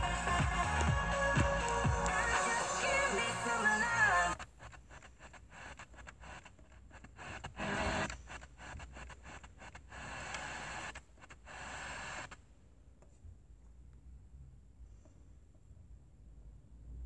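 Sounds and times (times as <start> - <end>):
radio static and hiss: 0.0 - 12.4
radio station snatch: 0.0 - 12.4.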